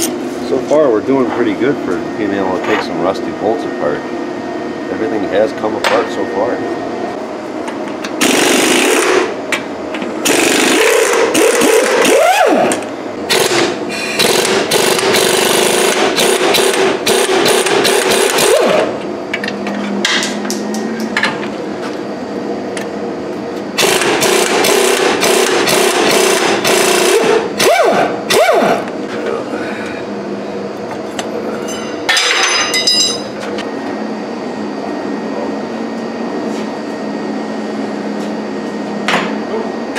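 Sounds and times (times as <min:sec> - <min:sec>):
impact wrench hammering: 0:08.2 - 0:09.3, 0:10.2 - 0:20.3, 0:23.8 - 0:28.9.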